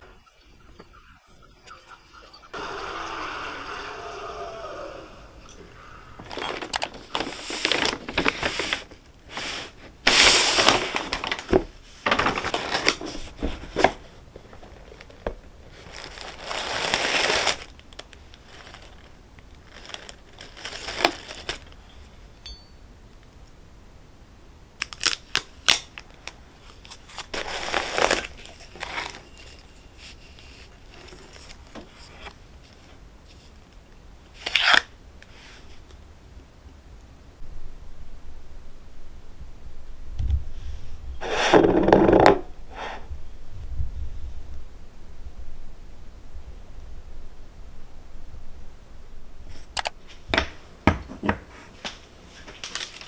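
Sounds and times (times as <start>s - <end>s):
paper packaging rustling: 6.2s - 22.2s, 24.8s - 33.6s, 51.8s - 53.0s.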